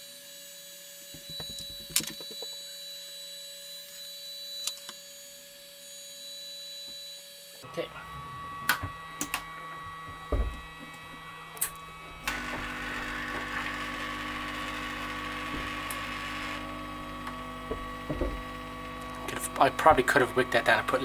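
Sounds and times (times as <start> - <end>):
steady fan hum with tones: 6.9 - 21.0.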